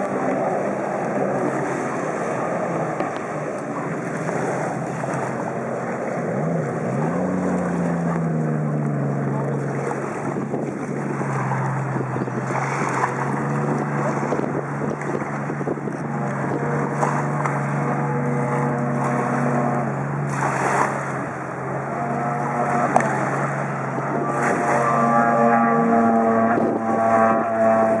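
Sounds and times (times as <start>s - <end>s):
water noise: 0.0s - 28.0s
watercraft engine droning: 0.0s - 28.0s
wind: 0.0s - 28.0s.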